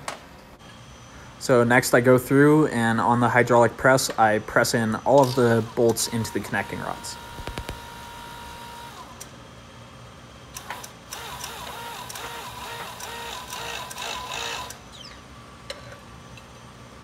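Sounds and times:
hydraulic press mechanical chatter: 4.8s - 9.2s, 10.6s - 15.2s.

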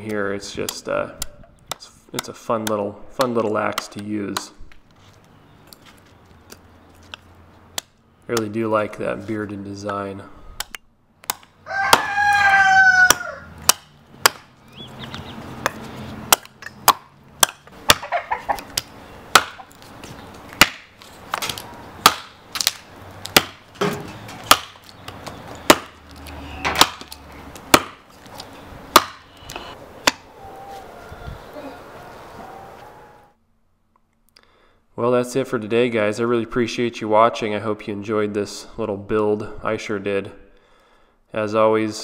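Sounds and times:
hatchet chopping logs: 0.1s - 4.6s, 6.5s - 8.6s, 10.6s - 14.6s, 15.5s - 30.3s
rooster crowing: 11.6s - 13.5s, 29.6s - 33.4s.

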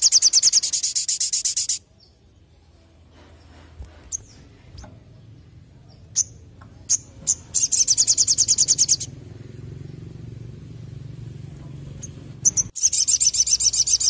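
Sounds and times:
bird chips and fast trill: 0.0s - 1.8s, 6.1s - 9.2s, 12.0s - 14.0s.

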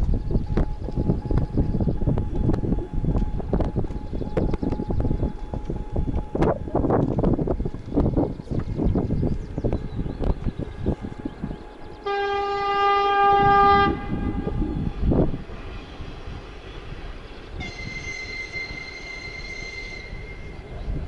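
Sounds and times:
horn blasts: 12.0s - 14.7s, 17.6s - 20.2s.

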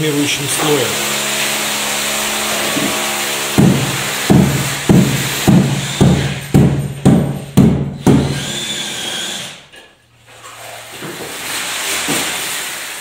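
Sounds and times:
power tool whirring: 0.2s - 6.5s, 8.0s - 9.8s
sharp knocks: 2.7s - 8.4s.

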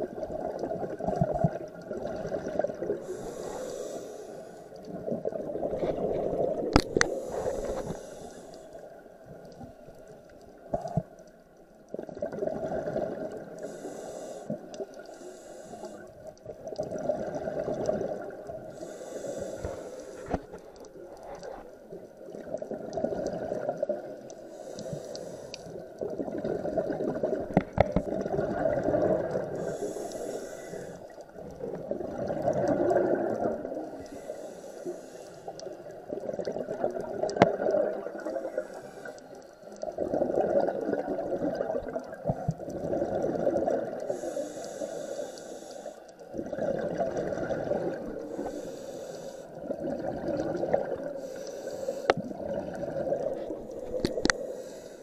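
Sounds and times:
exhaled air bubbling: 0.0s - 55.0s
regulator inhale hiss: 3.0s - 4.8s, 6.9s - 9.0s, 13.6s - 16.4s, 18.7s - 20.6s, 24.4s - 25.9s, 29.5s - 31.3s, 33.8s - 35.9s, 38.2s - 39.8s, 44.1s - 46.3s, 48.2s - 49.7s, 51.2s - 52.3s, 53.7s - 55.0s.

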